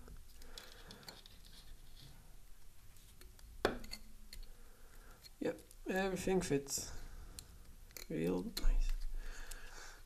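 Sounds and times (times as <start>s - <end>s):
faint rubbing and handling: 0.0s - 3.4s.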